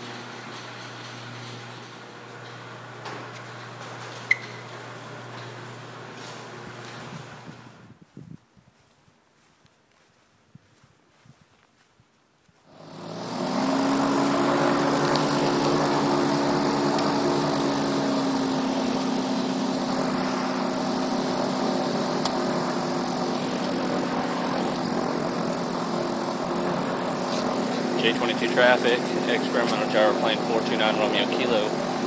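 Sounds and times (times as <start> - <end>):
gyroplane engine and propeller: 12.7 - 32.0.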